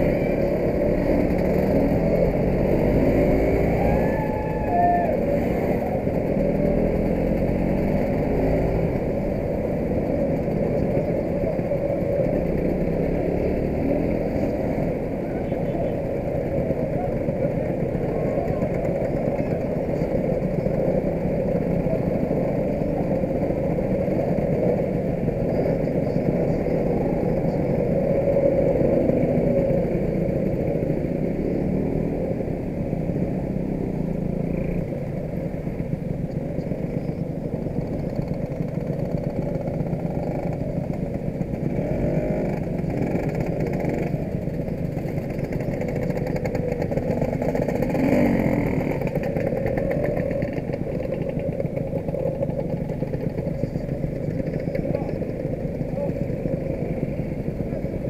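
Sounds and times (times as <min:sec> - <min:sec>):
scooter engines running: 0:00.0 - 0:58.0.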